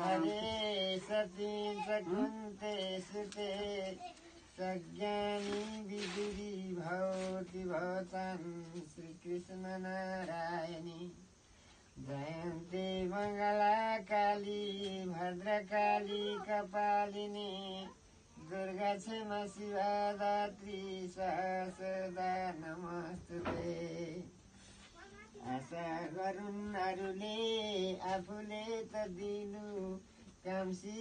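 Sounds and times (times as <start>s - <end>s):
man chanting: 0.0s - 11.2s, 12.0s - 24.3s, 25.4s - 31.0s.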